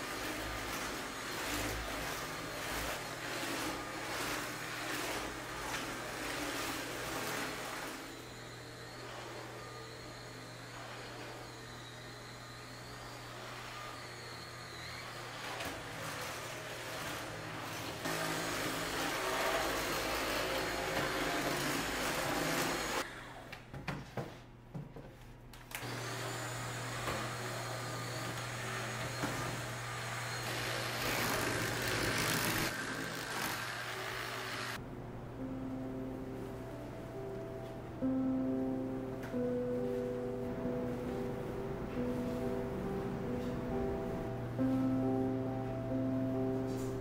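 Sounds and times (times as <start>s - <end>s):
stick vacuum on hard floor: 0.0s - 8.3s, 15.4s - 23.0s, 25.8s - 34.8s.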